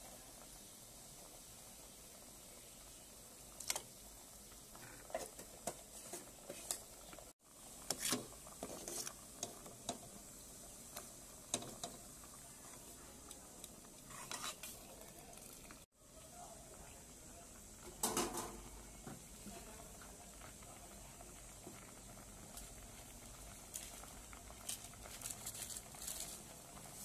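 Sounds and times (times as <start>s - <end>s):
metal ladle scraping metal strainer: 7.9s - 9.2s, 14.1s - 14.9s.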